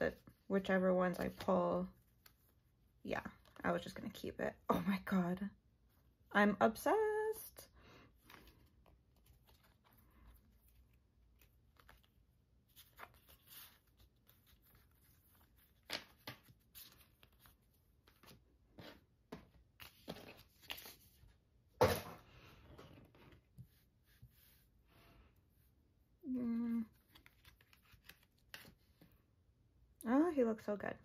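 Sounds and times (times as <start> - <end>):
cards rustling and clicking: 8.2 - 21.3, 26.9 - 29.2.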